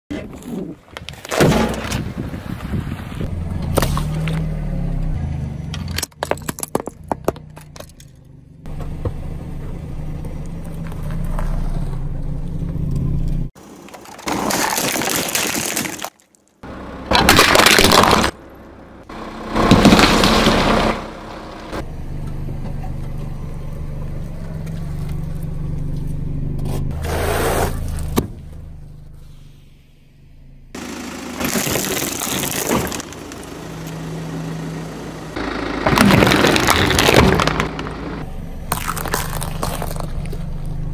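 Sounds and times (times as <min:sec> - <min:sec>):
car engine hum: 0:02.1 - 0:14.2, 0:16.6 - 0:40.9
crunching and cracking: 0:13.6 - 0:16.6, 0:17.2 - 0:18.4, 0:31.4 - 0:33.4, 0:35.8 - 0:38.0, 0:38.7 - 0:40.8
fruit squashing: 0:13.8 - 0:16.4, 0:31.4 - 0:33.2, 0:35.9 - 0:37.8, 0:38.7 - 0:40.5.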